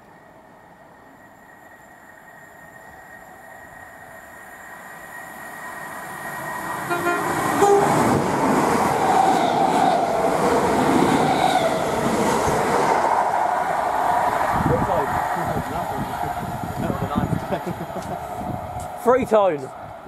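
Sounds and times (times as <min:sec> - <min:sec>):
electric train passing on rails: 0:00.0 - 0:20.0
train horn toot: 0:06.8 - 0:08.2.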